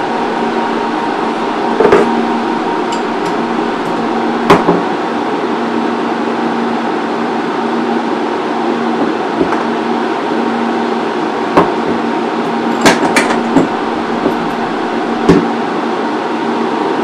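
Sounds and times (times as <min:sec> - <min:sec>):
cooling fans humming: 0:00.0 - 0:17.0.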